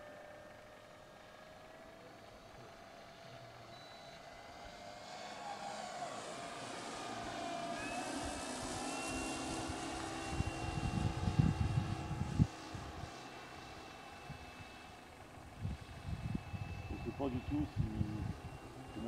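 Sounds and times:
model plane motor whining: 0.0 - 19.0.

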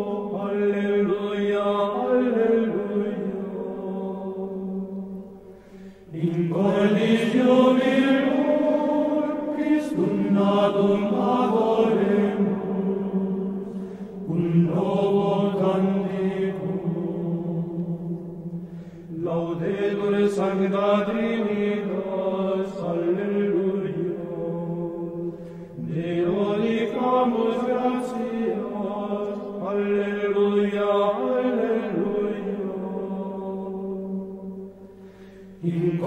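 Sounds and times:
choir chanting: 0.0 - 5.4, 6.0 - 34.9, 35.6 - 36.0.

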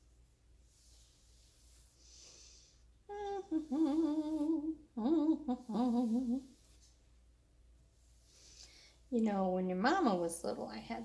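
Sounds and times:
woman humming: 3.1 - 6.6.

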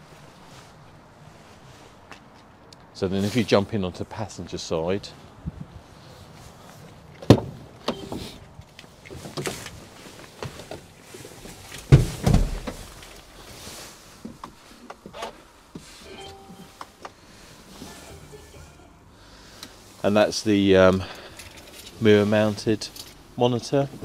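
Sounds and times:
rustling and small knocks: 6.3 - 17.2.

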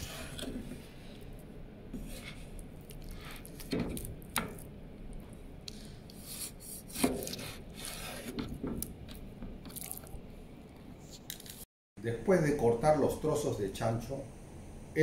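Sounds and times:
rubbing and scraping: 2.0 - 4.0.

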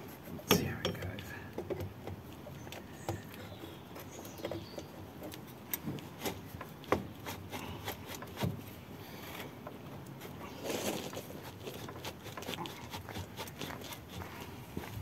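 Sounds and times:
metal knocks and clicks: 0.4 - 2.2
rubbing of wrap: 10.2 - 15.0.

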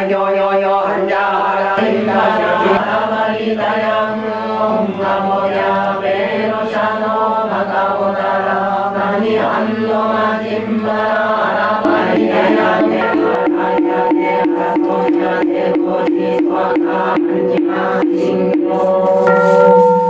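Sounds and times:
group chanting in unison: 0.0 - 19.5.

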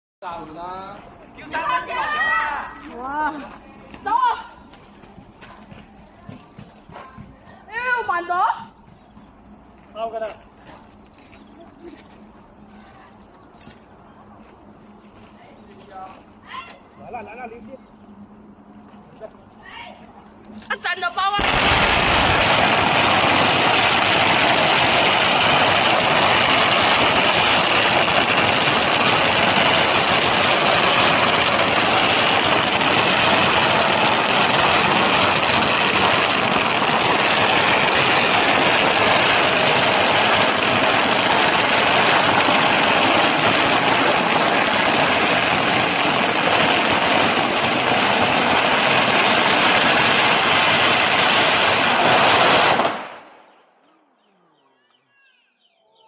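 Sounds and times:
firecrackers crackling: 20.6 - 53.5.

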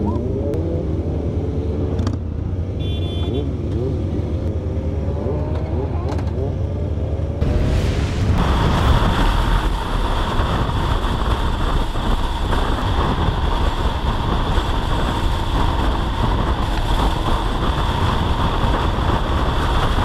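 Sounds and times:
wind rushing over microphone: 6.6 - 20.0
dirt bike engine running: 7.4 - 20.0.

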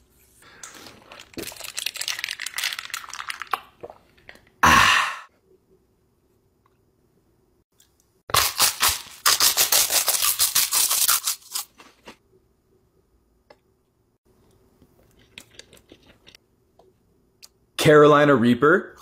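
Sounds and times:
chip crunching: 8.3 - 12.2.

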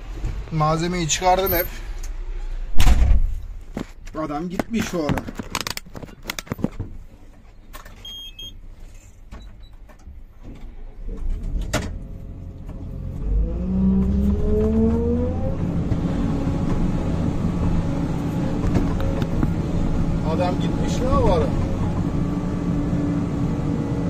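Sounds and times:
excavator diesel engine revving: 11.1 - 24.0.

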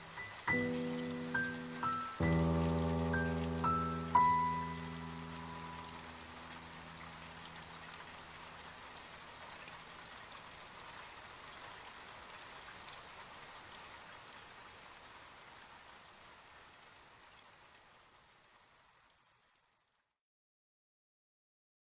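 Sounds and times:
low sustained music notes: 0.0 - 8.8
rain hissing: 0.0 - 19.3.

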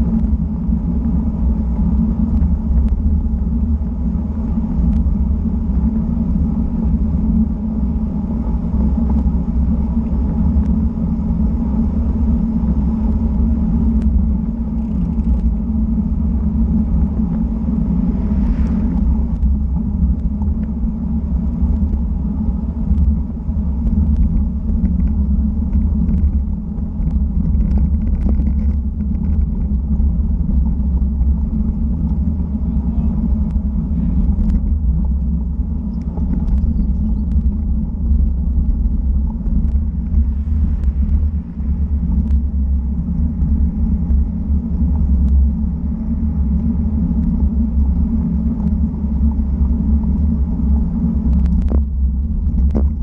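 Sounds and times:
bike tyre roar on asphalt: 0.0 - 53.0
wind buffeting microphone: 0.0 - 53.0
faint ticks: 51.3 - 51.9.

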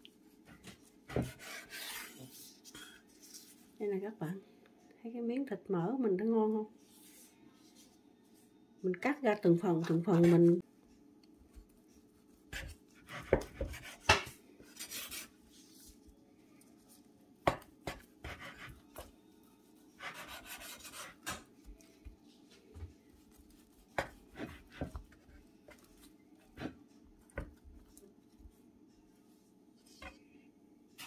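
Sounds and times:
knife scraping strokes: 1.2 - 3.6, 12.5 - 15.9, 19.9 - 21.4.

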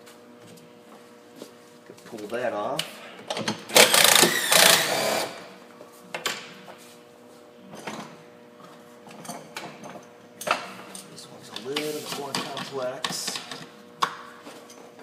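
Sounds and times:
cordless drill spinning: 3.8 - 5.4.

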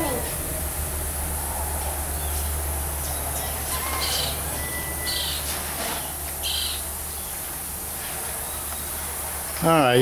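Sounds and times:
low hum and hiss: 0.0 - 10.0
bird short high calls: 3.4 - 7.3.

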